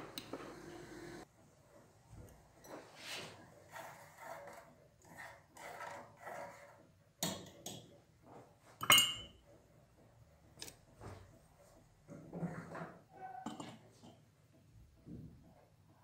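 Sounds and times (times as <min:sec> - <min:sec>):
spoon clinking on ceramic cup: 0:08.8 - 0:09.4.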